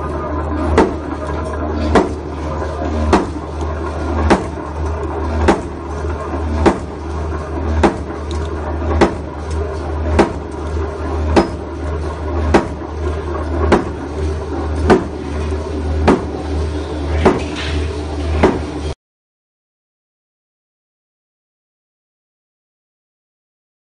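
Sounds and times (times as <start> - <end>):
low motor hum: 0.0 - 19.0
mechanism rattling: 0.6 - 16.3
sharp metallic clank: 11.4 - 11.6.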